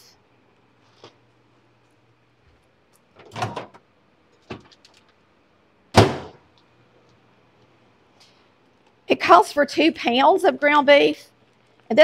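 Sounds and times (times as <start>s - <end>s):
door shutting thud: 5.9s - 6.4s.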